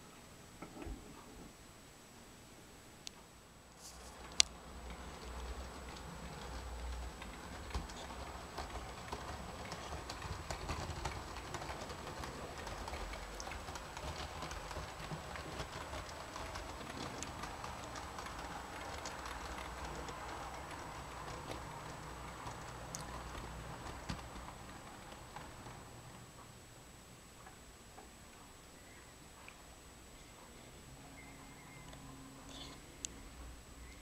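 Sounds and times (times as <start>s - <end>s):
model train wheels clicking: 4.1s - 26.1s.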